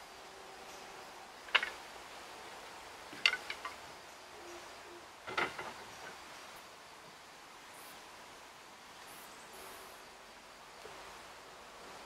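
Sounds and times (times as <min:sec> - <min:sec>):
wooden slats rattling: 0:01.4 - 0:01.9, 0:03.1 - 0:03.9, 0:05.2 - 0:06.2
wooden clacks: 0:01.5 - 0:01.8, 0:03.1 - 0:03.8, 0:05.3 - 0:06.2.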